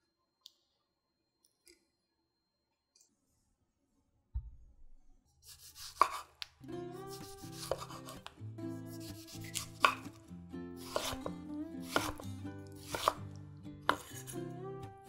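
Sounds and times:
knife slicing tomato: 0:05.4 - 0:14.6
soft background music: 0:06.6 - 0:15.0.

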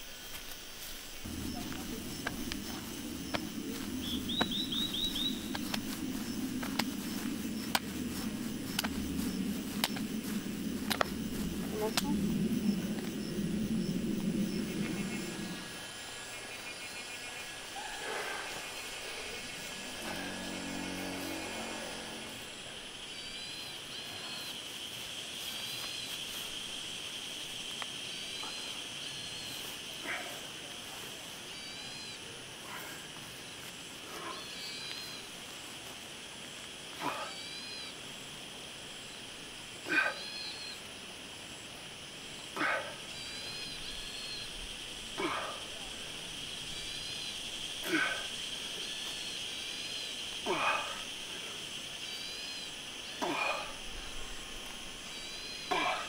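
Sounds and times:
high insect drone: 0:00.0 - 0:56.0
bird chirping: 0:01.2 - 0:24.5
man breathing out hard: 0:47.8 - 0:48.4, 0:50.4 - 0:51.6.

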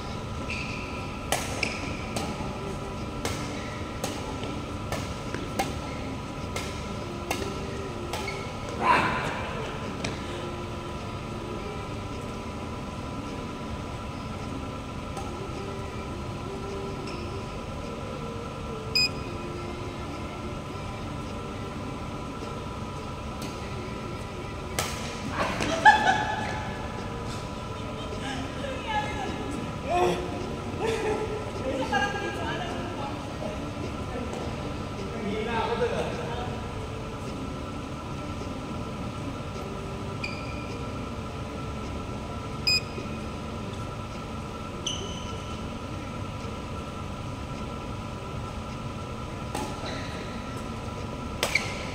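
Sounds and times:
steady background hum: 0:00.0 - 0:51.9
sneaker squeaks on court floor: 0:00.5 - 0:01.0, 0:40.2 - 0:40.8, 0:44.8 - 0:45.5, 0:51.4 - 0:51.9
racket striking shuttlecock: 0:01.3 - 0:02.4, 0:03.2 - 0:05.9, 0:06.5 - 0:08.8.

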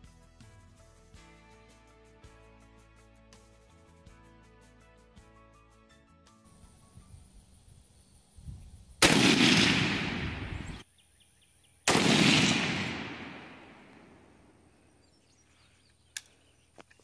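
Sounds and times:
long rolling echo: 0:09.0 - 0:10.8, 0:11.9 - 0:14.7
rifle shots: 0:09.0 - 0:10.8, 0:11.9 - 0:14.3.

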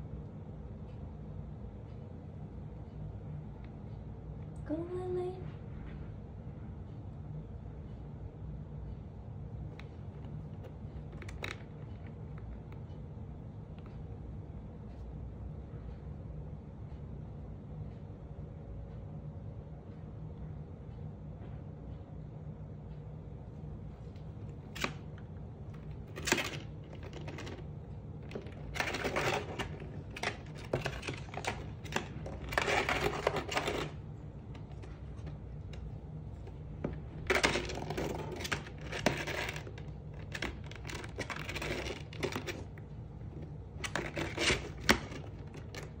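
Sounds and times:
steady low hum: 0:00.0 - 0:46.0
parrot chewing cardboard and wood: 0:10.1 - 0:12.6, 0:24.6 - 0:46.0.

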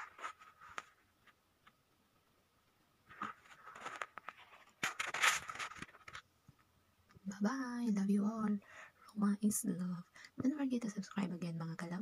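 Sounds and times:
paper rustling and scraping: 0:00.0 - 0:01.1, 0:03.1 - 0:06.2.

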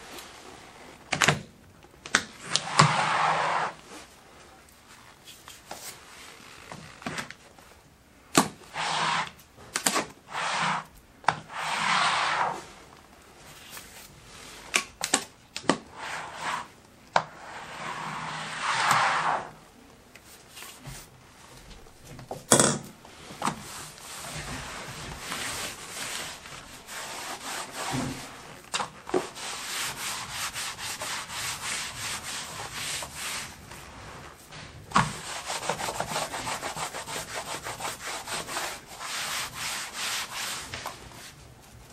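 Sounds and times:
scraper scraping wooden floor: 0:02.4 - 0:04.1, 0:08.7 - 0:09.4, 0:10.3 - 0:12.8, 0:15.9 - 0:16.7, 0:17.3 - 0:19.6, 0:23.1 - 0:41.4
wet cloth rubbing floor: 0:02.5 - 0:07.0, 0:10.3 - 0:14.7, 0:15.9 - 0:22.3, 0:23.0 - 0:41.9.

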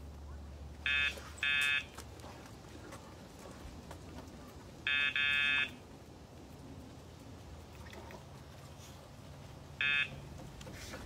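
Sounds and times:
electronic buzzer beeps: 0:00.9 - 0:01.8, 0:09.8 - 0:10.1.

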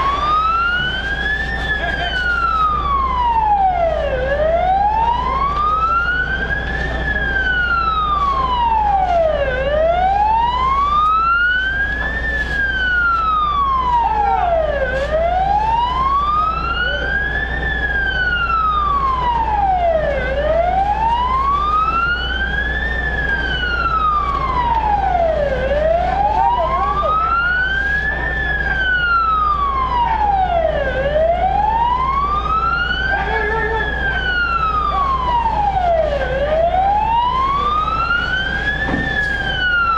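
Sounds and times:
siren wailing: 0:00.0 - 0:39.9.

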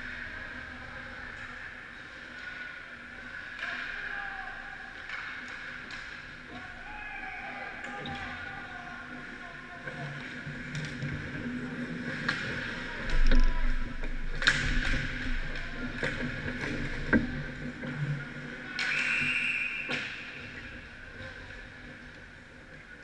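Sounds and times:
sticks and puck clacking: 0:01.2 - 0:06.9, 0:07.8 - 0:22.3
referee's whistle: 0:18.8 - 0:20.1.

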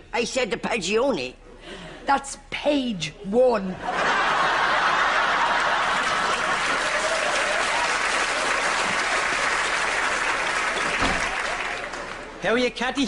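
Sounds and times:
audience applauding: 0:04.5 - 0:12.4.

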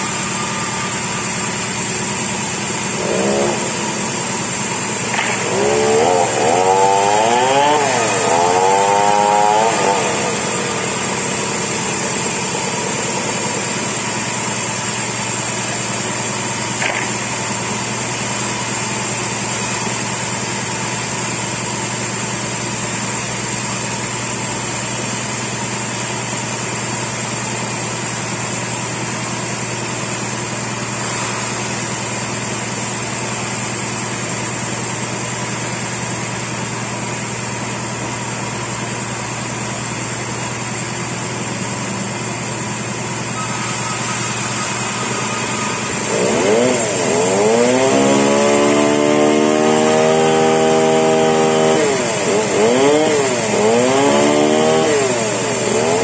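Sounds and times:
chainsaw revving and cutting: 0:01.9 - 0:19.7, 0:44.9 - 0:56.0.

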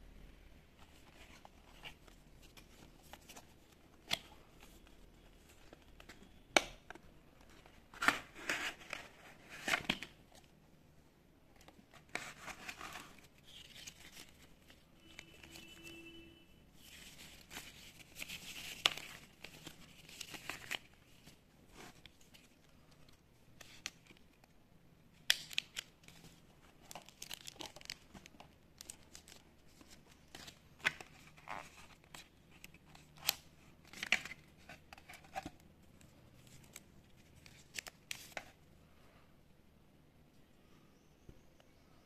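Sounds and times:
paper packaging rustling: 0:16.8 - 0:23.0, 0:25.3 - 0:35.6.

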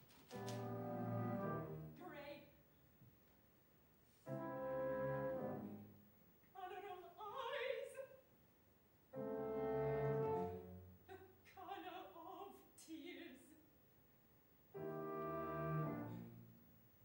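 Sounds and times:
accompaniment chords: 0:00.3 - 0:02.1, 0:04.3 - 0:06.0, 0:09.2 - 0:11.0, 0:14.8 - 0:16.5
operatic soprano singing: 0:06.5 - 0:08.2, 0:11.1 - 0:13.5.

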